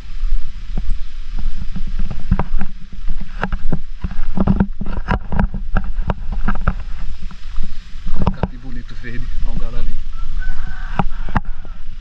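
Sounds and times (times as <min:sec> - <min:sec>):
sharp knocks and rattles: 0:00.7 - 0:09.8.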